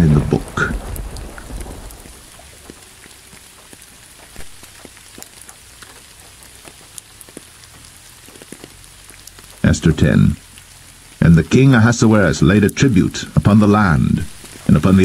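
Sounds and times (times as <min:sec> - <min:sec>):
louder raindrop tap: 0:00.0 - 0:11.6
light rain pattering: 0:00.0 - 0:15.0.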